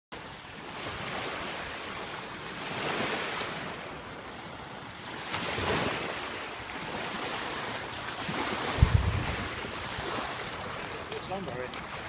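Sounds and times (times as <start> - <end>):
small waves washing onto sand: 0.2 - 12.0.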